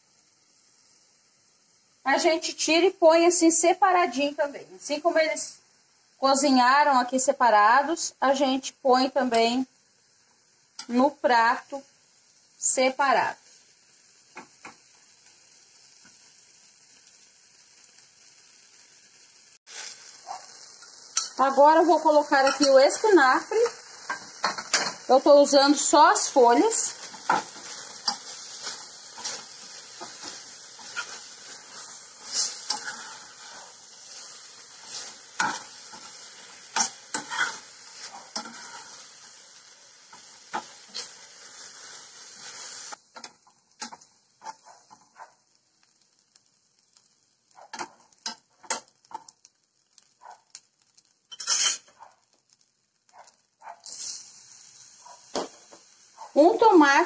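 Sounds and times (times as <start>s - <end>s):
leaves sizzling in a pan: 0.0s - 57.0s
utensils clicking against pan: 20.3s - 34.2s, 34.8s - 38.9s, 43.1s - 45.2s, 47.6s - 49.4s.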